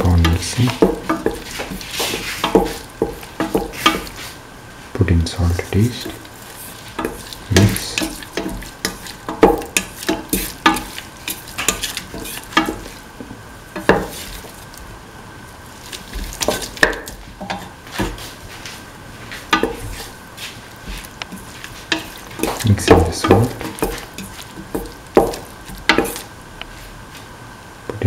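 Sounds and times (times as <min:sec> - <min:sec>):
onions sizzling: 0:00.0 - 0:27.3.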